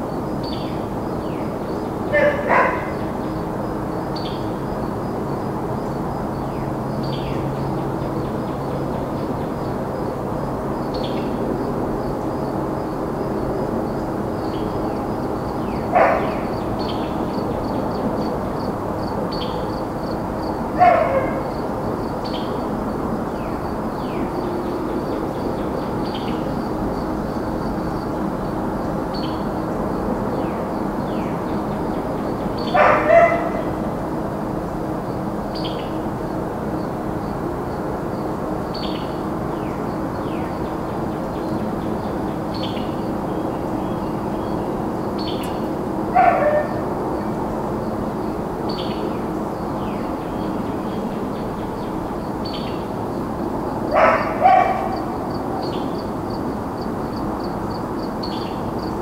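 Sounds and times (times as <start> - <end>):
crickets chirping: 0.0 - 59.0
distant highway traffic hum: 0.0 - 59.0
birds chirping: 0.2 - 9.7, 14.4 - 17.8, 30.4 - 33.9
dog barking: 2.1 - 3.0, 15.9 - 16.5, 20.8 - 21.5, 32.7 - 33.7, 46.1 - 46.9, 53.9 - 55.2.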